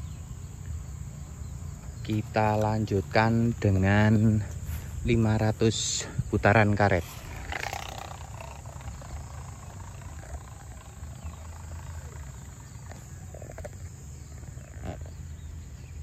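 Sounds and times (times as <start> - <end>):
faint open-air background noise: 0.0 - 16.0.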